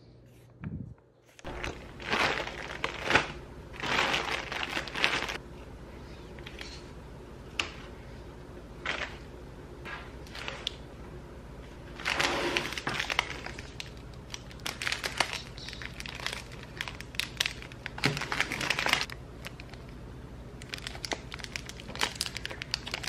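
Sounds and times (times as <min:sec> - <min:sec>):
plastic wrapping crinkling: 0:01.4 - 0:05.4, 0:11.9 - 0:19.9, 0:20.6 - 0:23.0.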